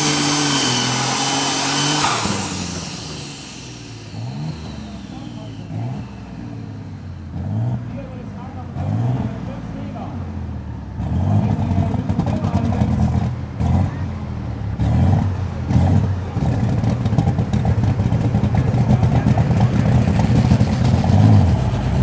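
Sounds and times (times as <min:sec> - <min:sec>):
faint rising whine: 0:00.0 - 0:07.2
tractor engine running hard: 0:00.0 - 0:08.6, 0:11.3 - 0:22.0.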